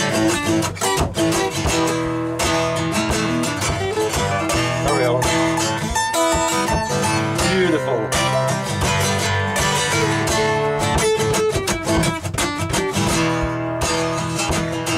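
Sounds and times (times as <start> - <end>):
acoustic guitars strummed and picked: 0.0 - 14.9.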